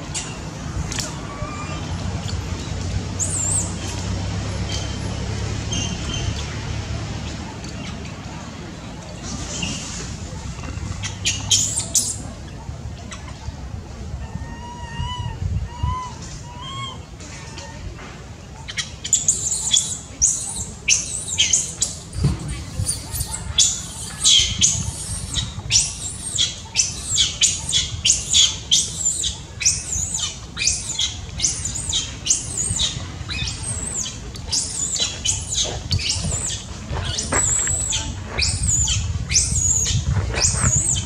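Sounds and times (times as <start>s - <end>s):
baby monkey crying: 14.2s - 17.0s.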